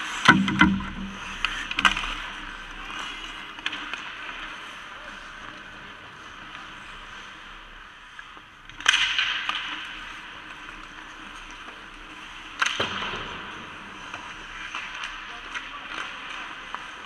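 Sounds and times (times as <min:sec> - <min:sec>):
stick hitting puck: 0:00.0 - 0:04.2, 0:08.7 - 0:10.9, 0:12.5 - 0:17.0
skates scraping ice: 0:00.0 - 0:17.0.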